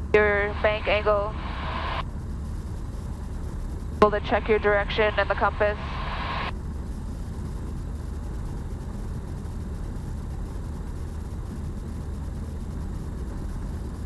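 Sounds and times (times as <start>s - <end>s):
small plane engine drone in cabin: 0.0s - 14.0s.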